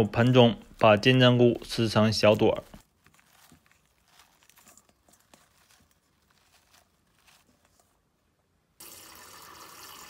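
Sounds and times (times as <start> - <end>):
mushrooms torn crackling: 0.0 - 8.0
tap water running into bowl: 8.8 - 10.0.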